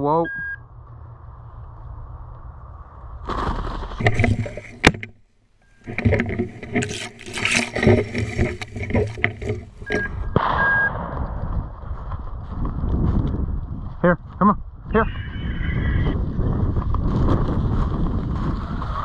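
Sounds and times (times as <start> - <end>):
rustling through dry grass: 1.3 - 4.9, 5.7 - 10.0
footsteps crunching through dry grass: 5.8 - 9.9
shotgun shot: 10.4 - 11.4.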